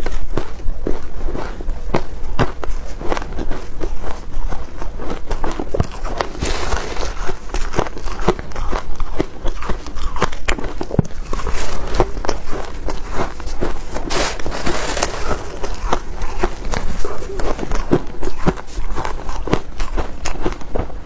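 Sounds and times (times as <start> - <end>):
chewing crunchy shaved ice: 0.0 - 21.0
fingers digging into ice: 5.8 - 20.0.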